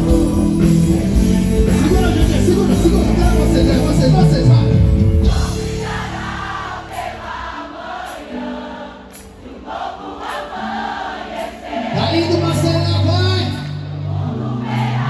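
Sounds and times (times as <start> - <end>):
full band with bass: 0.0 - 7.1
crowd singing gospel song: 0.0 - 15.0.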